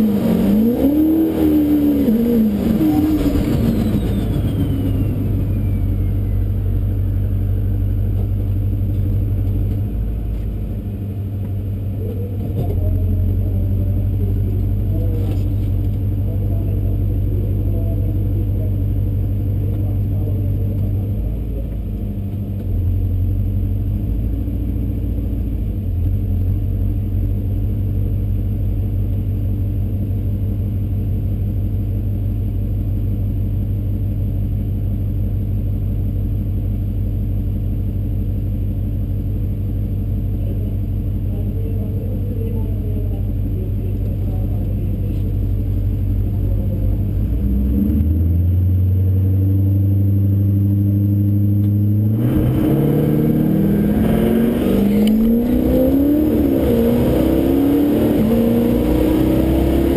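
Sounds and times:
truck engine idling: 3.3 - 50.3.

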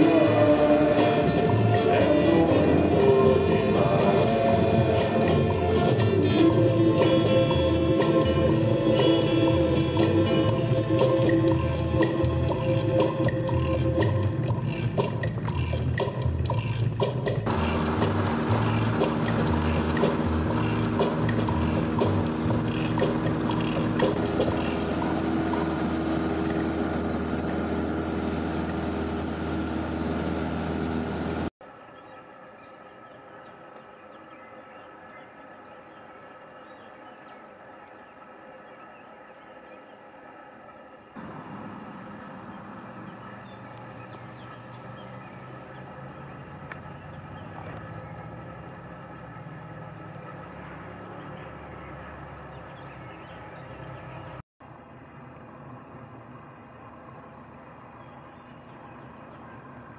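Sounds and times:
crickets chirping: 0.0 - 29.1, 31.6 - 59.9
light aircraft engine running: 0.0 - 31.5, 40.2 - 54.4
distant aircraft engine drone: 0.0 - 54.4.

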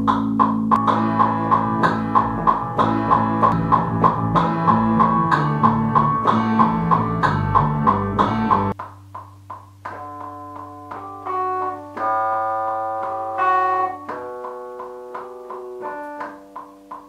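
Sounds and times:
keyboard music: 0.0 - 8.8, 9.9 - 17.0.

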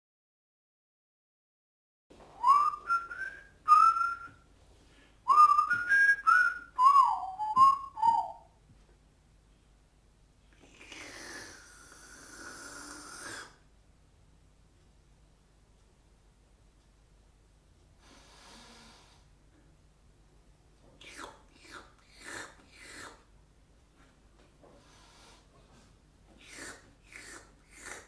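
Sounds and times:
person whistling a tune: 2.4 - 4.4, 5.3 - 8.5.

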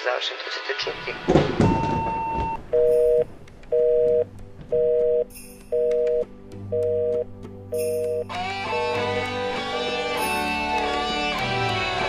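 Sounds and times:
telephone busy signal beeps: 1.8 - 7.2, 7.8 - 9.2
electronic music drone: 8.4 - 10.7.

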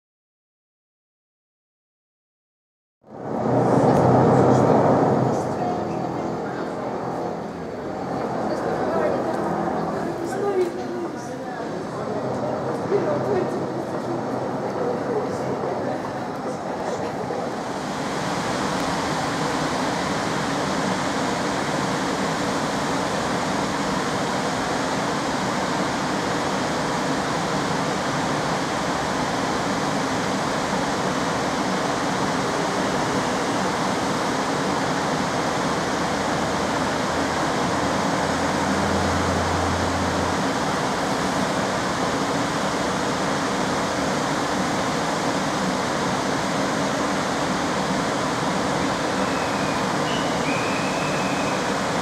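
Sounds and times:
low hum: 3.0 - 16.7
locomotive cooling blowers rushing: 3.1 - 52.0.

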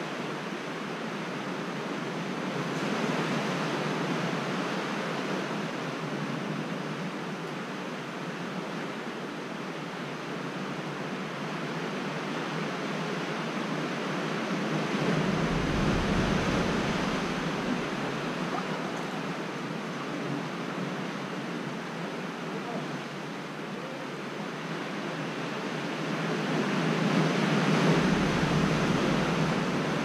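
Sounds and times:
sea surf against rocks: 0.0 - 30.0.

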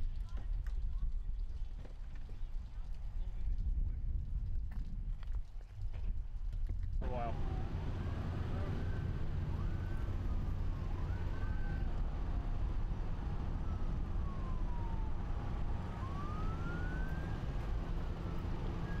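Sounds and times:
low rumble of highway traffic: 0.0 - 19.0
emergency sirens wailing: 7.0 - 19.0.

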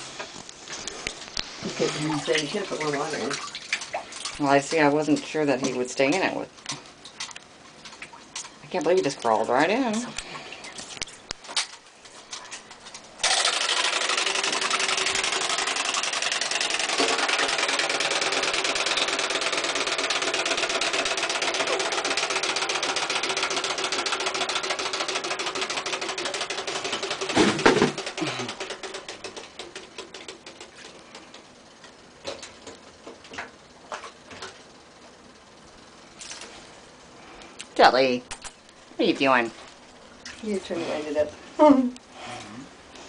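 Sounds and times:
faint water splashes: 1.6 - 9.0
clockwork toy motor whirring: 13.2 - 28.9.

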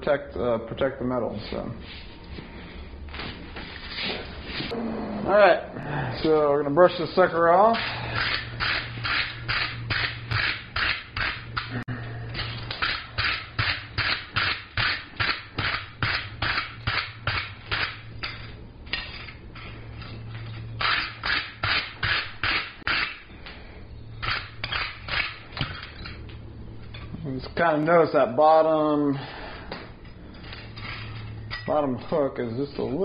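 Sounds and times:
wire brush scrubbing hot steel: 7.0 - 11.8, 12.4 - 23.3, 24.2 - 25.6.

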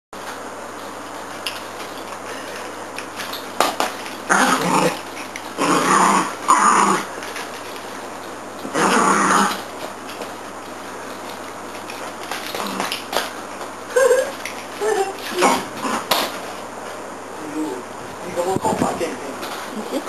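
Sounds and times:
small dog growling: 4.3 - 7.4, 8.6 - 9.7, 12.4 - 13.3, 13.9 - 16.4.

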